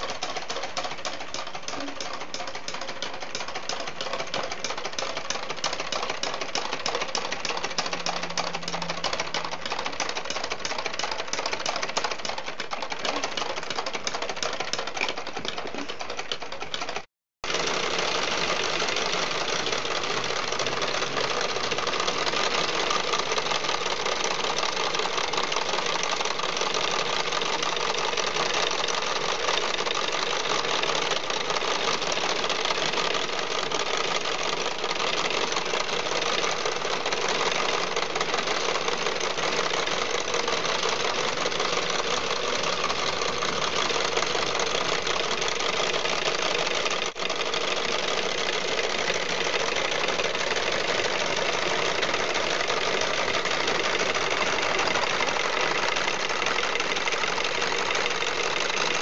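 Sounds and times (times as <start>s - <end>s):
toy engine clattering clicks: 0.0s - 59.0s.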